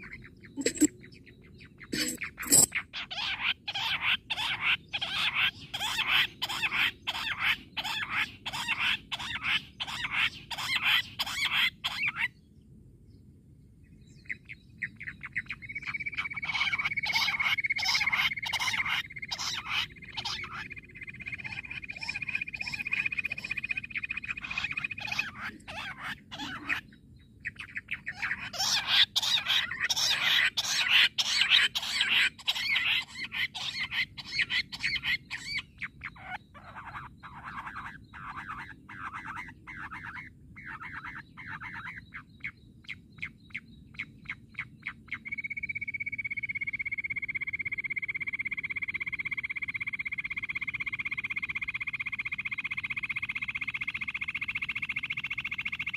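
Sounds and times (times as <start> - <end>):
quail calling: 2.0 - 12.3, 14.3 - 26.9, 27.5 - 42.6.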